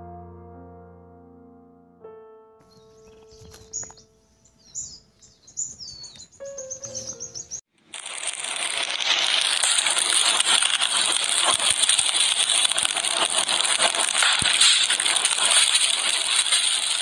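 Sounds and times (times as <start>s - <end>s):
fire crackling and hissing: 7.2s - 17.0s.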